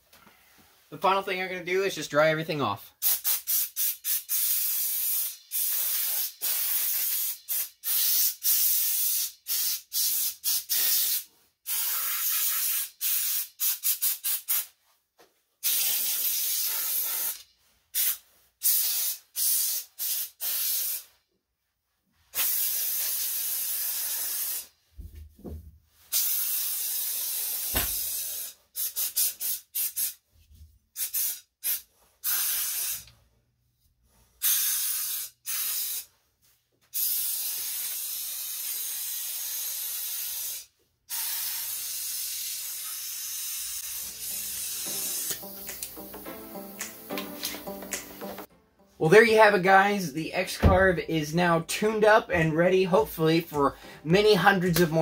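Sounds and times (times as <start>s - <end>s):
air blow gun bursts: 3.0s - 14.7s, 15.6s - 17.4s, 18.0s - 21.0s, 22.4s - 24.7s, 26.1s - 30.2s, 31.0s - 33.1s, 34.4s - 36.1s, 37.0s - 48.4s.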